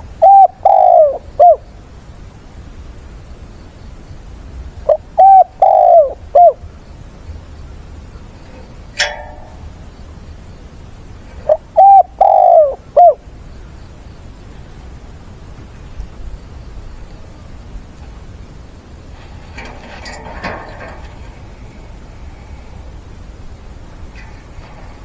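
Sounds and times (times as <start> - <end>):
dove cooing: 0.0 - 1.6, 4.8 - 6.7, 11.4 - 13.2
sharp click: 8.9 - 9.7.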